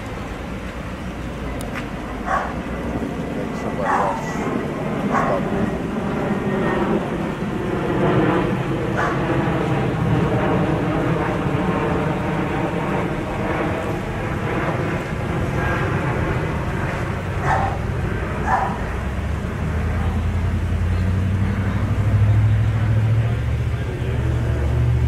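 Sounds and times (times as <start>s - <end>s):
deep rumble: 0.0s - 25.0s
vehicle engine: 0.0s - 25.0s
dog barks: 2.2s - 2.6s, 3.8s - 4.4s, 5.1s - 5.5s, 9.0s - 9.2s, 17.4s - 17.8s, 18.4s - 18.9s.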